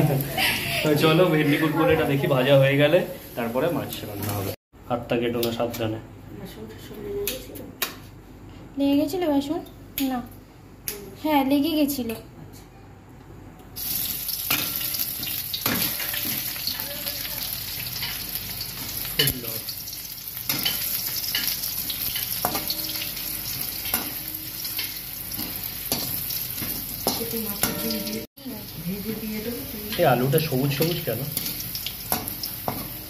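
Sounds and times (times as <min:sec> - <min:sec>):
potato wedges sizzling in oil: 0:00.0 - 0:04.6, 0:13.8 - 0:33.0.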